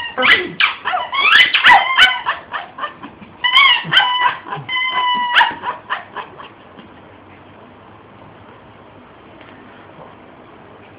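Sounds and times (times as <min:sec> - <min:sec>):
squeaky dog toy squeaking: 0:00.0 - 0:02.4, 0:03.4 - 0:06.0.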